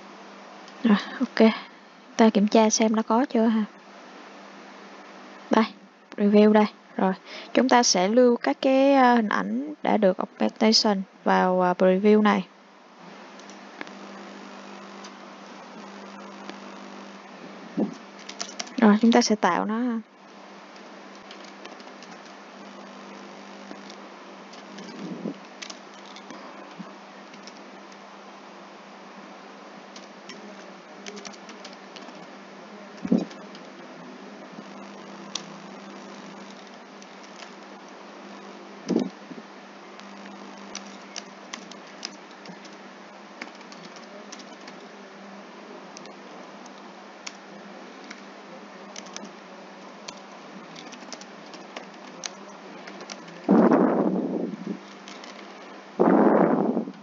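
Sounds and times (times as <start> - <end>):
steady background hiss: 0.0 - 57.0
low hum: 12.2 - 57.0
keyboard keys clicking: 27.3 - 27.6, 31.0 - 32.2, 40.7 - 42.8, 43.4 - 44.8, 48.9 - 49.3, 50.8 - 53.3.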